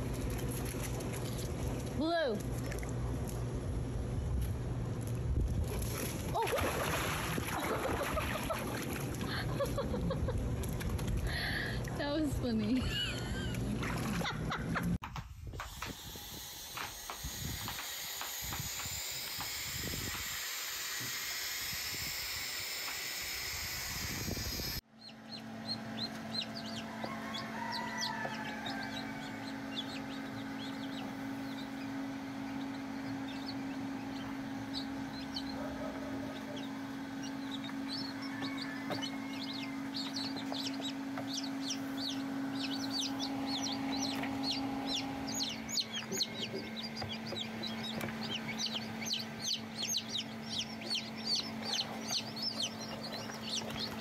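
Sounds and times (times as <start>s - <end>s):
incubator humming: 0.0s - 54.0s
chicks peeping: 24.2s - 54.0s.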